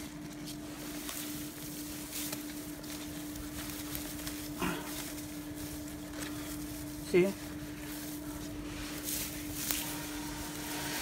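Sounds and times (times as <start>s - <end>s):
dry hay rustling: 0.0s - 11.0s
low hum: 0.0s - 11.0s.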